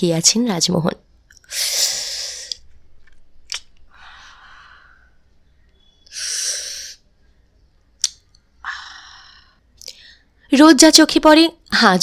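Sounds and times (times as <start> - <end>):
mouth click: 3.4 - 3.8, 8.0 - 8.4.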